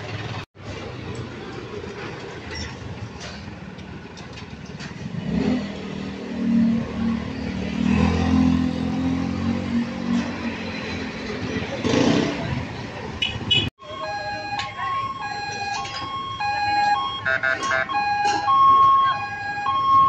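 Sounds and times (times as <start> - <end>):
motorcycle engines running: 0.0 - 13.6
street traffic: 0.0 - 20.0.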